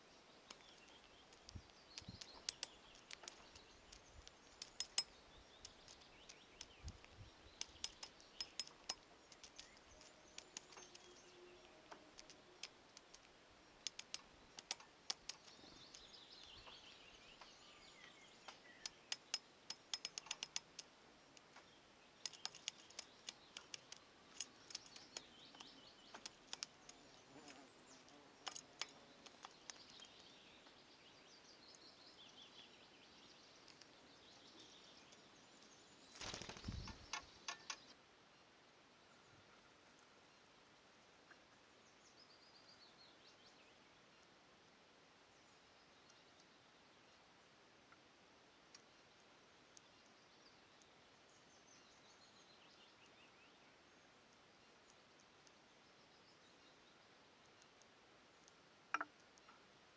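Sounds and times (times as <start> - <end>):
faint birdsong: 0.0 - 59.9
woodpecker tapping metal feeder: 0.5 - 11.3, 12.0 - 17.0, 18.4 - 21.5, 22.2 - 30.3, 36.2 - 37.9, 58.9 - 59.1.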